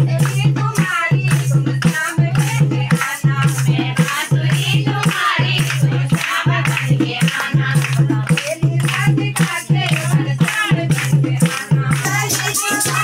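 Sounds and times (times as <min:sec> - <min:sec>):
hand drum beat: 0:00.0 - 0:13.0
rhythmic hand clapping: 0:00.0 - 0:13.0
women singing devotional song: 0:00.0 - 0:13.0.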